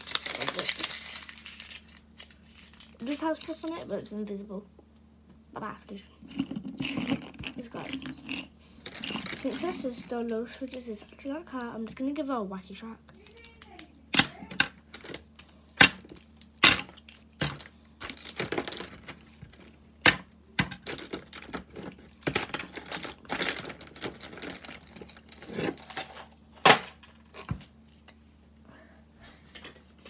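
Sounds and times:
plastic rustling: 0.0s - 4.1s, 8.8s - 10.8s, 14.9s - 19.8s, 20.7s - 27.5s.

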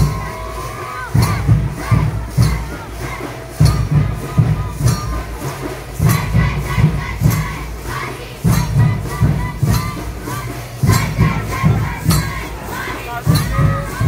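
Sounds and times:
crowd noise: 0.0s - 14.0s
drum beating: 0.0s - 14.0s.

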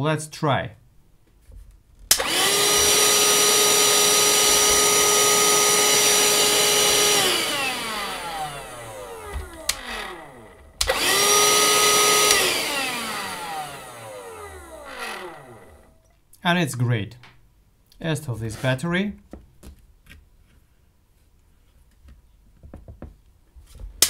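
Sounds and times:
handheld vacuum motor whine: 2.1s - 16.0s.

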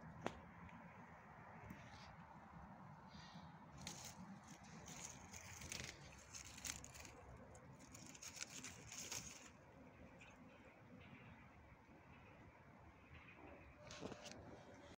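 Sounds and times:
dry stalks and plastic rustling: 1.6s - 11.4s, 13.8s - 14.9s.

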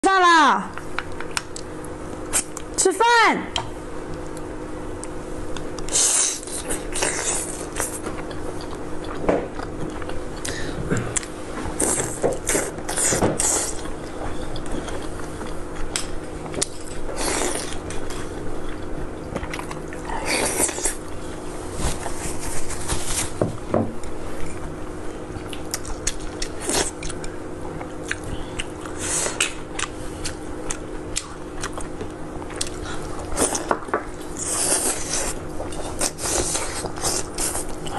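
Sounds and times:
faint steady hum: 0.0s - 37.9s
person biting and chewing food: 25.4s - 37.9s.

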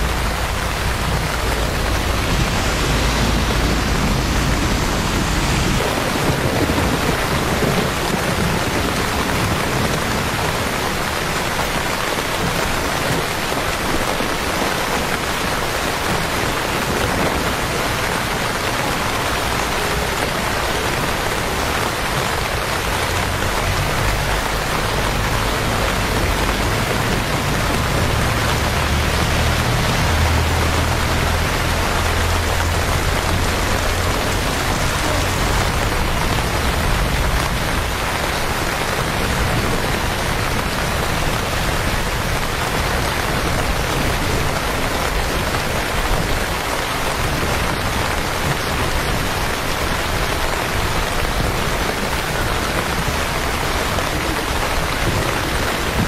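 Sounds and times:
low rumble: 0.0s - 7.6s
rain falling on wet pavement: 0.0s - 56.0s.

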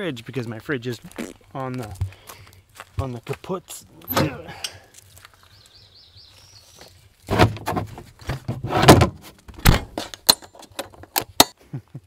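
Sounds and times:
latch clicking: 4.0s - 4.4s
box clattering and scraping: 7.2s - 11.1s.

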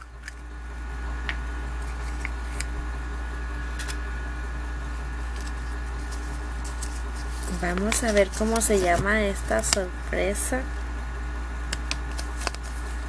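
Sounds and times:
low electrical hum: 0.0s - 13.0s
plastic capsule clicks and rustles: 5.3s - 9.8s, 11.7s - 12.8s.

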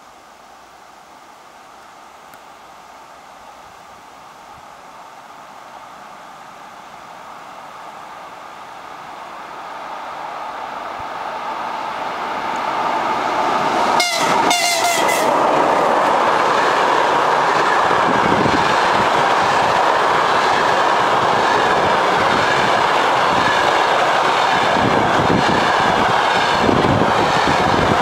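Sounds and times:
train coaches rushing and clattering: 11.6s - 28.0s
locomotive horn blasts: 14.0s - 15.4s.

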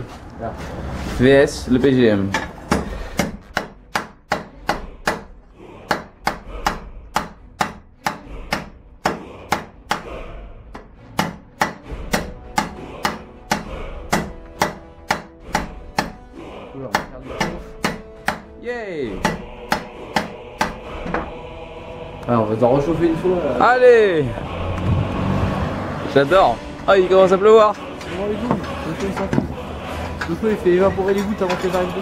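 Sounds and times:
hammer striking hot steel: 2.3s - 10.2s, 10.8s - 16.2s, 16.9s - 18.5s, 19.2s - 21.3s.

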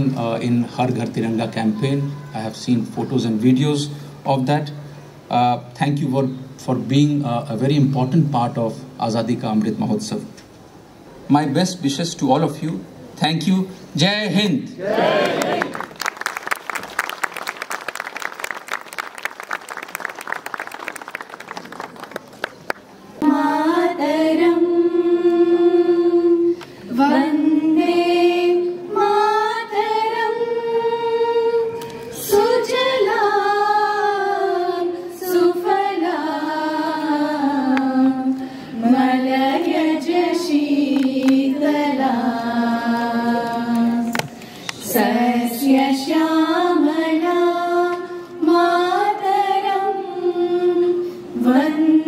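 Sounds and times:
people clapping: 14.9s - 23.0s, 40.9s - 41.4s, 43.4s - 44.9s
women singing in unison: 23.2s - 52.0s.

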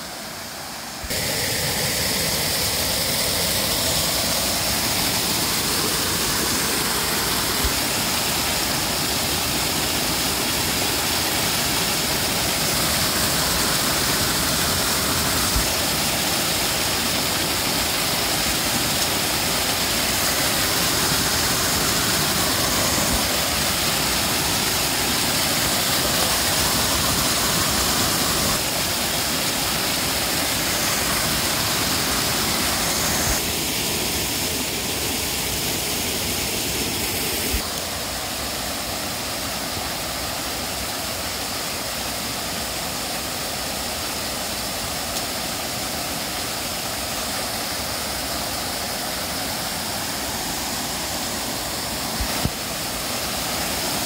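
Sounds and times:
waterfall splashing into pool: 0.0s - 54.0s.

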